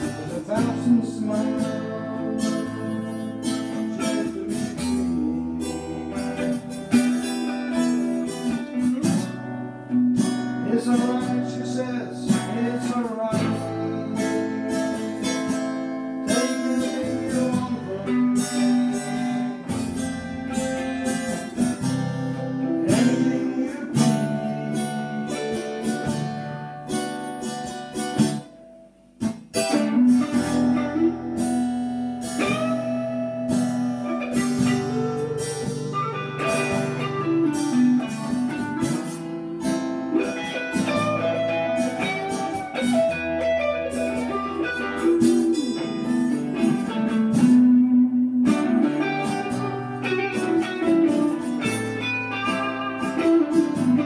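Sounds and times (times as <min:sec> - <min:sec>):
two guitars playing blues: 0:00.0 - 0:54.0.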